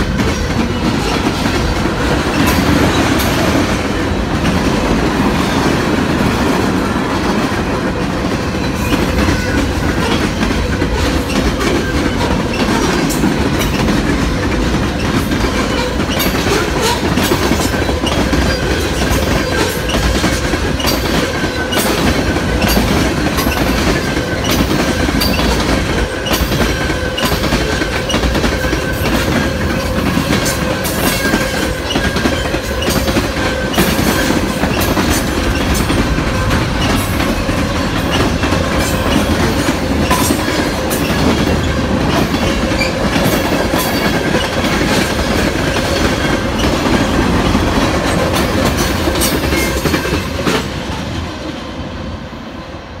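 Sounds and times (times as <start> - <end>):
wheels clicking over rail joints: 0.0 - 50.7
train wheel rumble: 0.0 - 53.0.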